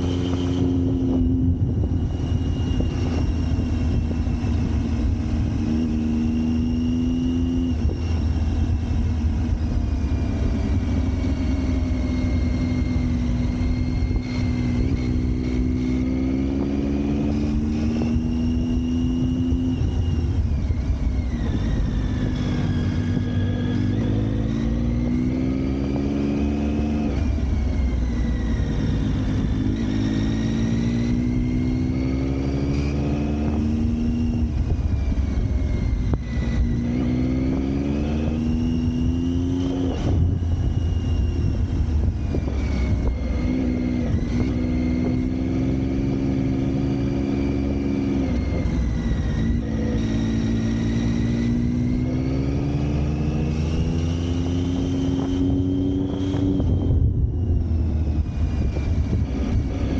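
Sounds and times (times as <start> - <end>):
high whine: 0.0 - 59.9
vehicle engine accelerating: 0.0 - 59.9
steady low rumble: 0.6 - 5.7, 55.4 - 59.8.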